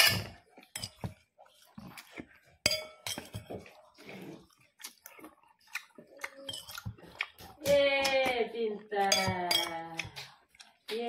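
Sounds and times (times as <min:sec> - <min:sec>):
metal spoon scraping plates: 0:00.0 - 0:01.0
chewing: 0:00.3 - 0:02.6, 0:03.2 - 0:08.9, 0:09.7 - 0:11.0.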